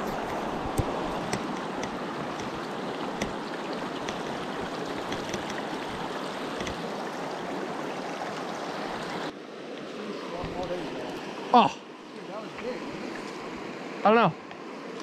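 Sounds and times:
river rushing over stones: 0:00.0 - 0:15.0
sharp clicks: 0:05.0 - 0:05.7.

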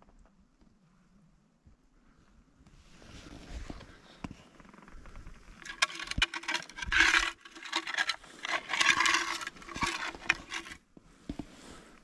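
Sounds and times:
scraping against trees and brush: 0:02.8 - 0:12.0.

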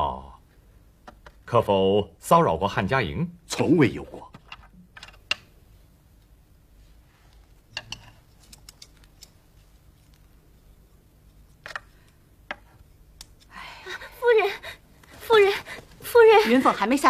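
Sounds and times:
chopsticks clicking on porcelain: 0:07.7 - 0:09.4, 0:13.2 - 0:13.5.

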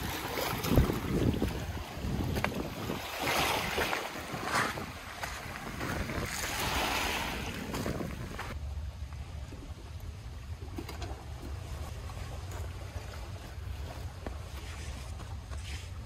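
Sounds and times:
small waves washing over pebbles: 0:00.0 - 0:08.6
wind rumbling on microphone: 0:00.0 - 0:08.6.

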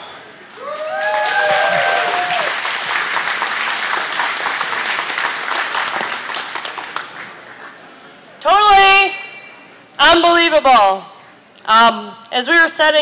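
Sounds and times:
people whooping: 0:00.5 - 0:02.9
crowd applauding: 0:00.5 - 0:07.4.

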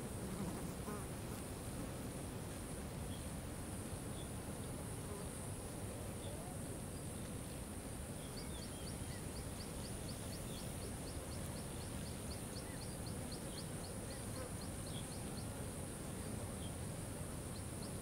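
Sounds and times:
faint bird chirps: 0:08.2 - 0:15.6.

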